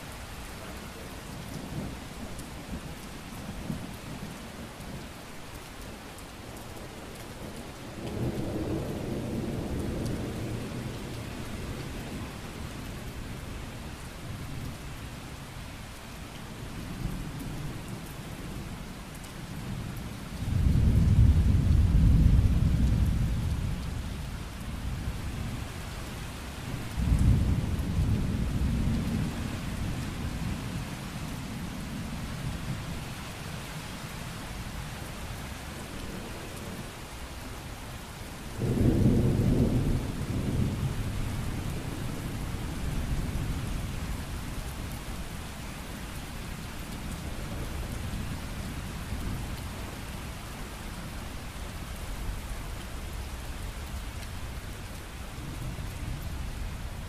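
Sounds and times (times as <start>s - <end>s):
steady rain falling: 0.0s - 57.0s
low rolls of thunder: 7.5s - 12.7s, 19.6s - 25.6s, 26.7s - 30.7s, 38.6s - 44.3s.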